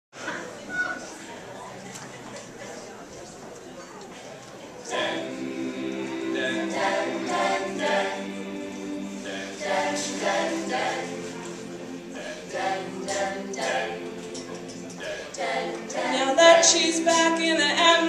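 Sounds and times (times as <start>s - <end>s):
a cappella group singing: 4.9s - 18.0s.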